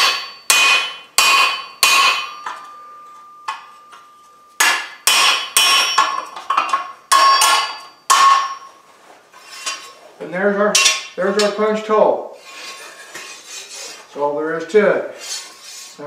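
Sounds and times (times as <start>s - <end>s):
hammer striking metal punch: 0.0s - 8.7s, 10.8s - 11.2s.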